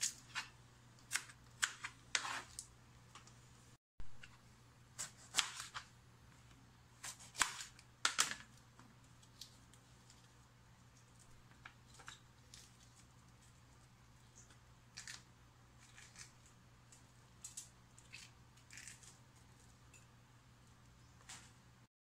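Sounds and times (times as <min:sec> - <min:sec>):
fingers rustling and scraping peppers: 0:00.0 - 0:03.4, 0:08.5 - 0:20.0.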